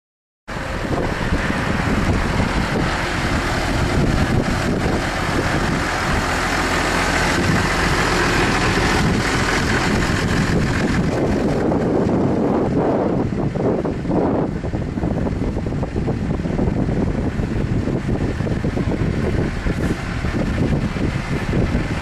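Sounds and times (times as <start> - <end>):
tractor diesel engine idling: 0.5 - 22.0
wind on microphone: 0.5 - 22.0.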